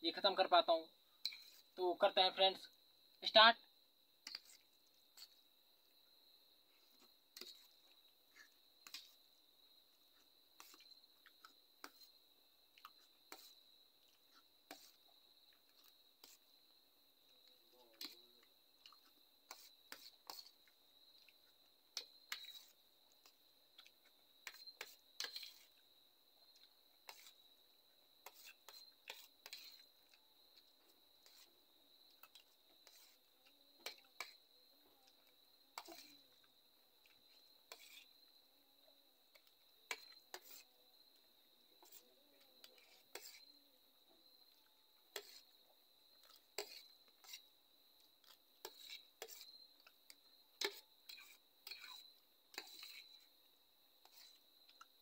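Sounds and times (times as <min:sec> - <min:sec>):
spoon scraping steel plate: 0:19.5 - 0:20.6, 0:22.3 - 0:22.8, 0:24.4 - 0:25.7, 0:27.0 - 0:27.4, 0:28.2 - 0:29.9, 0:31.2 - 0:31.5, 0:32.8 - 0:33.2, 0:35.8 - 0:36.2, 0:37.7 - 0:38.1, 0:39.9 - 0:40.7, 0:42.6 - 0:43.4, 0:45.1 - 0:45.5, 0:46.2 - 0:47.4, 0:48.2 - 0:49.6, 0:50.6 - 0:53.2, 0:54.0 - 0:54.4.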